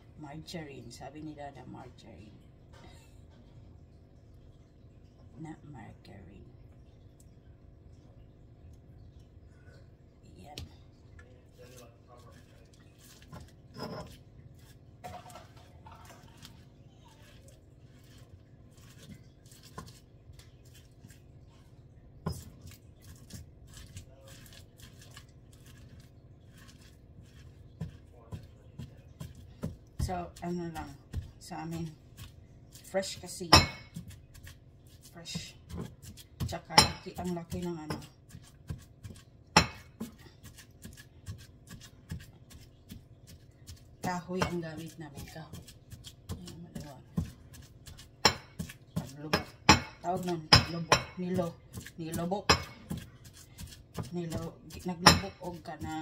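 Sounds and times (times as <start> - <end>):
pestle scraping in a mortar: 12.2 - 21.3, 22.2 - 56.0
pestle knocking in a mortar: 22.2 - 25.0, 26.6 - 32.4, 33.2 - 56.0.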